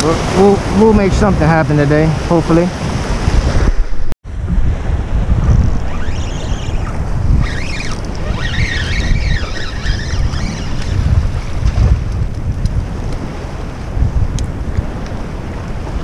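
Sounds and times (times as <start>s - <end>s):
surf washing against rocks: 0.0s - 16.0s
wind buffeting microphone: 0.0s - 16.0s
high sliding tones: 5.8s - 11.0s.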